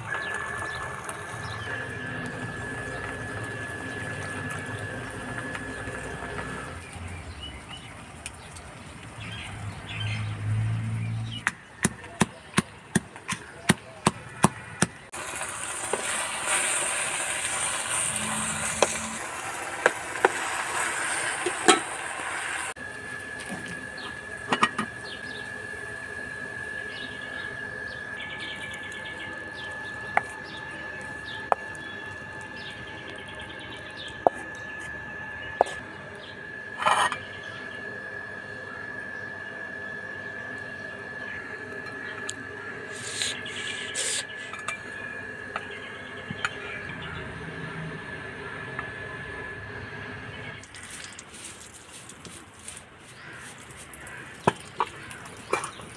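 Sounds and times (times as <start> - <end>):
food sizzling in a hot pan: 15.2 - 23.5.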